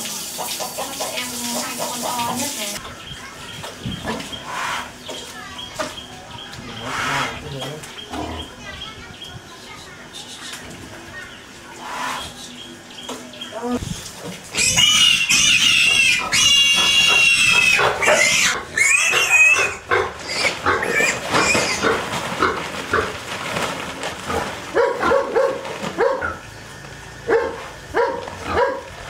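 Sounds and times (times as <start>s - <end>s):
pigs grunting: 4.0s - 5.1s, 6.6s - 8.6s, 14.5s - 26.5s
pigs squealing: 4.0s - 5.1s, 6.6s - 8.6s, 11.8s - 12.4s, 14.5s - 23.2s.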